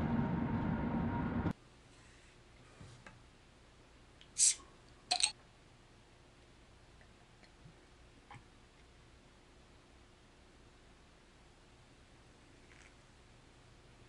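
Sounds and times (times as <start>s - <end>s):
bottle gas hiss: 4.4s - 4.6s.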